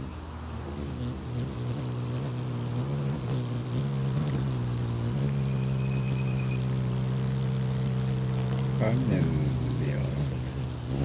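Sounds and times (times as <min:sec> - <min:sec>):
engine humming: 0:00.0 - 0:11.0
faint bird chirps: 0:04.4 - 0:10.6.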